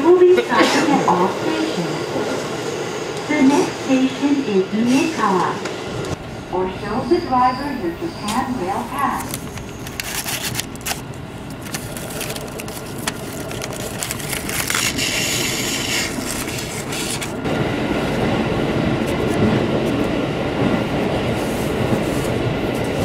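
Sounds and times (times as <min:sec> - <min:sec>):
train interior running noise: 0:00.0 - 0:23.0
wrapping paper rustling: 0:09.2 - 0:17.4.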